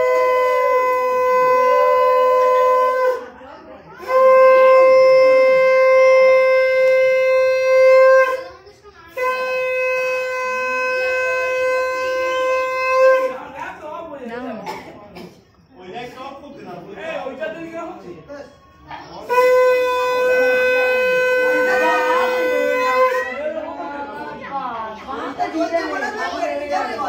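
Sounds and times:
conch shell blasts: 0:00.0 - 0:03.4, 0:04.0 - 0:13.4, 0:19.2 - 0:23.4.

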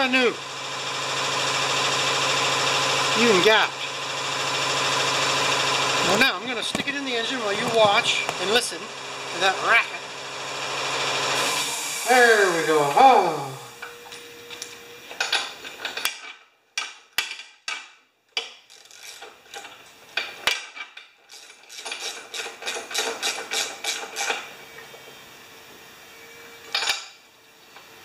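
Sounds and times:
ratchet wrench clicking: 0:18.4 - 0:19.7, 0:21.3 - 0:24.4.

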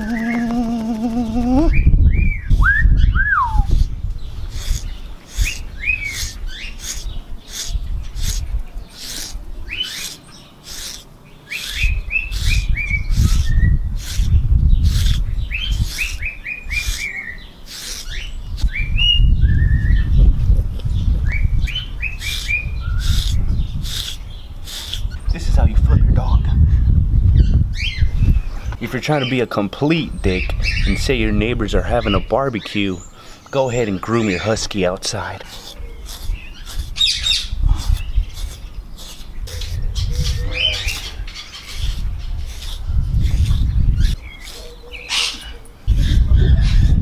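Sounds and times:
small bird chirping: 0:00.0 - 0:26.0, 0:31.9 - 0:47.0
brush rasping through dog fur: 0:03.7 - 0:03.9, 0:04.5 - 0:18.8, 0:22.2 - 0:25.8, 0:34.1 - 0:44.7.

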